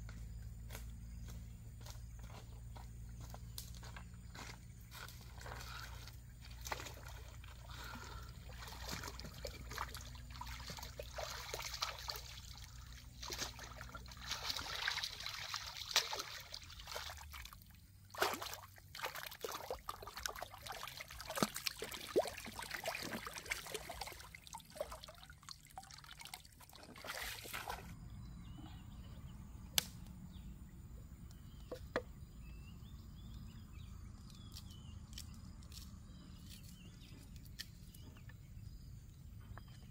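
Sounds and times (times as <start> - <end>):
water sloshing and splashing: 5.4 - 28.0.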